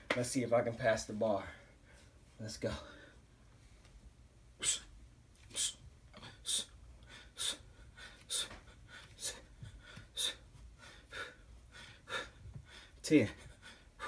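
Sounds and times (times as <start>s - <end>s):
man breathing forcefully: 5.5s - 14.0s.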